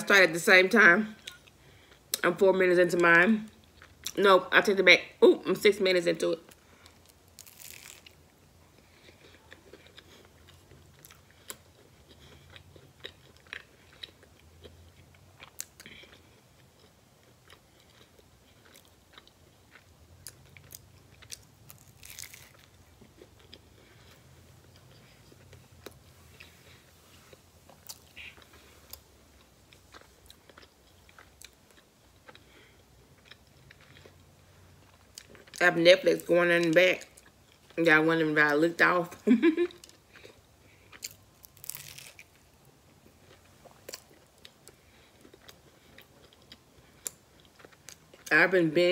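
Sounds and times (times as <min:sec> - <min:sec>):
person chewing food: 0:01.2 - 0:02.2, 0:03.5 - 0:04.2, 0:06.5 - 0:35.6, 0:39.6 - 0:48.3
crust crunching: 0:21.2 - 0:29.0.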